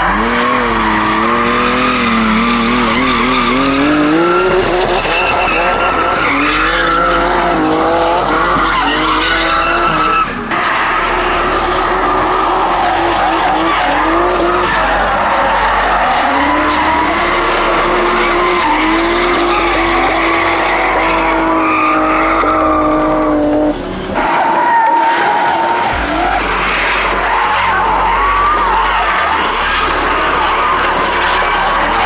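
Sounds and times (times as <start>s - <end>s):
car engines revving: 0.0s - 32.0s
tyres screeching: 8.5s - 22.5s.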